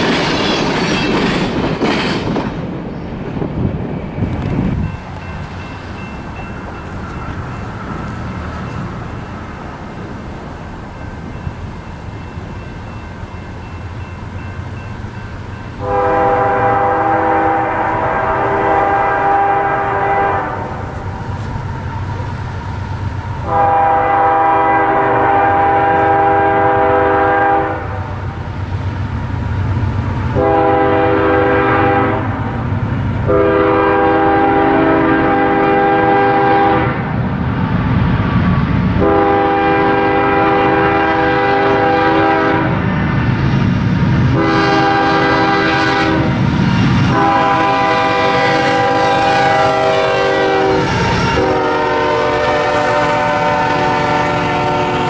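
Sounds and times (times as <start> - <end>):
diesel locomotive rumble: 0.0 - 55.0
train air horn blasts: 15.8 - 21.0, 23.4 - 28.2, 30.3 - 32.5, 33.2 - 37.1, 39.0 - 42.8, 44.3 - 46.4, 47.0 - 55.0.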